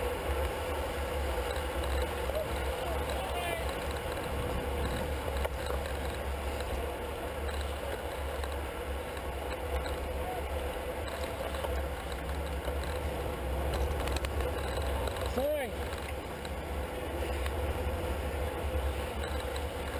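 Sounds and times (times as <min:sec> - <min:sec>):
tyre and road noise: 0:00.0 - 0:19.9
wind rumble on microphone: 0:00.4 - 0:09.9.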